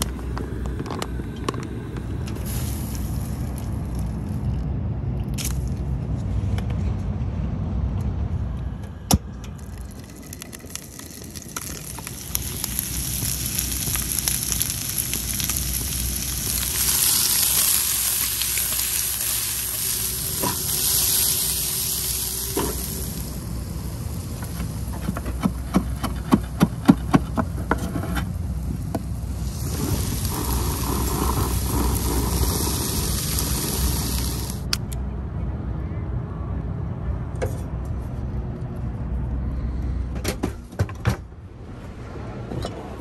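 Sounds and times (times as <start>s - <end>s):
shrimp sizzling in a frying pan: 10.2s - 24.8s, 29.0s - 34.7s.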